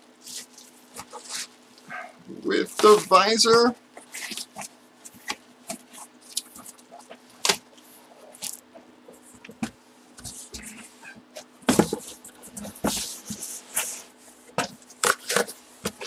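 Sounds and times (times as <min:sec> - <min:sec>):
faint steady hum: 0:00.0 - 0:16.0
cardboard boxes being handled: 0:02.7 - 0:07.6, 0:08.3 - 0:16.0.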